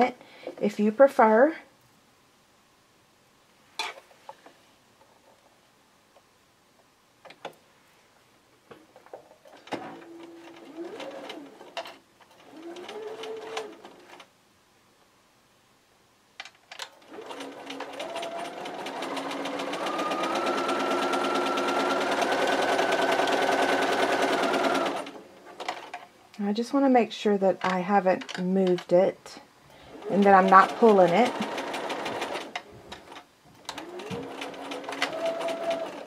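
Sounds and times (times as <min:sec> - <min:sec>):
sewing machine stitching: 0:09.5 - 0:14.3, 0:17.0 - 0:26.0, 0:29.9 - 0:36.0
sewing machine clicks: 0:30.0 - 0:36.0.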